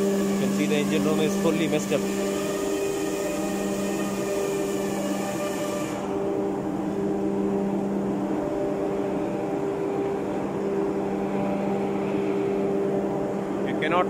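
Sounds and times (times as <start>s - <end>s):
engine room machinery drone: 0.0s - 14.0s.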